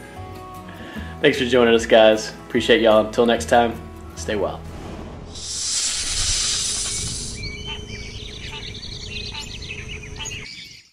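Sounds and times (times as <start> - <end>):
low rumble: 4.6 - 10.2
loud hissing whoosh: 4.7 - 7.6
birds chirping: 5.5 - 10.9.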